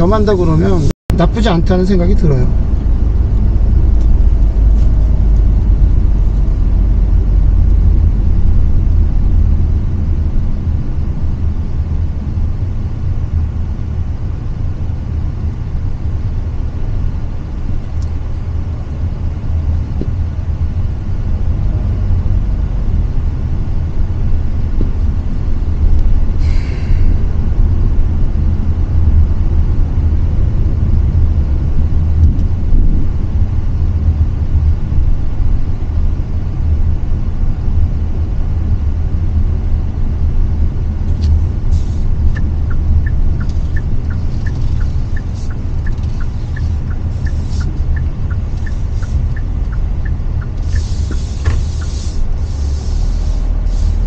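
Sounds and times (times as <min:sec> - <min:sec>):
van cabin road rumble: 0:00.0 - 0:54.0
brief hiss: 0:26.4 - 0:27.2, 0:50.6 - 0:54.0.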